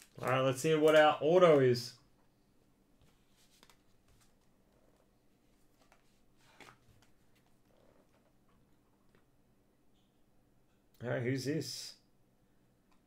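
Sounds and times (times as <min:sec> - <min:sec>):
trading card rustling in holder: 0:00.0 - 0:01.8, 0:03.0 - 0:08.3.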